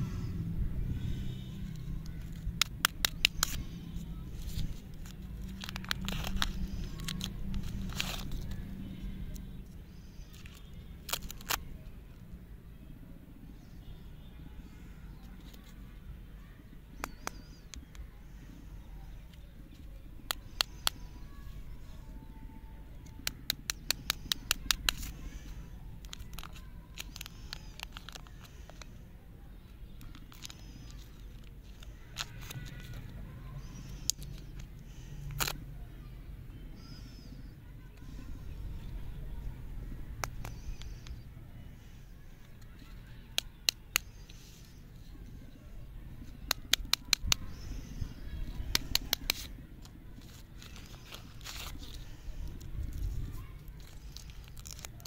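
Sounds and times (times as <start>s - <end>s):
steady low rumble: 0.0s - 55.0s
paper wrapper crinkling and tearing: 1.8s - 9.4s, 10.1s - 11.7s, 23.0s - 28.9s, 29.9s - 35.6s, 46.4s - 55.0s.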